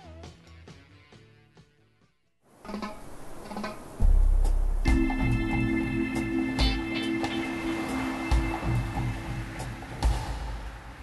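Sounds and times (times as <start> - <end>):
light percussion: 3.5 - 11.0
held keyboard chord: 4.9 - 9.9.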